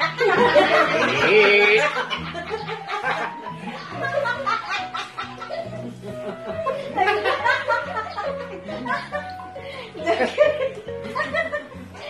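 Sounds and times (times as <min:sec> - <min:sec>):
background music with bass notes: 0:00.0 - 0:12.0
people laughing: 0:00.0 - 0:12.0.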